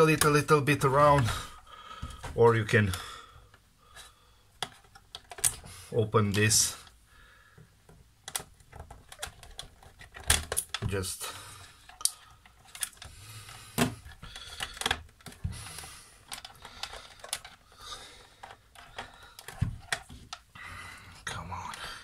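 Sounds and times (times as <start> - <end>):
plastic clicks taps and knocks: 4.6 - 5.7, 7.6 - 11.0, 13.8 - 17.7.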